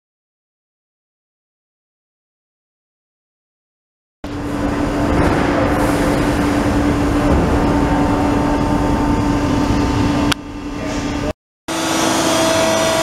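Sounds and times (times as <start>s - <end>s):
press brake machine hum: 4.3s - 13.0s.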